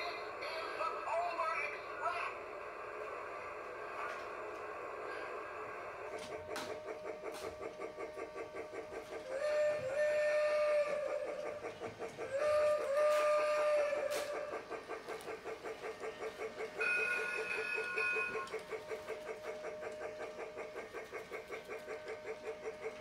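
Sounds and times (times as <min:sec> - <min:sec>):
toy train chugging: 0:00.0 - 0:23.0
toy train steam whistle: 0:06.1 - 0:23.0.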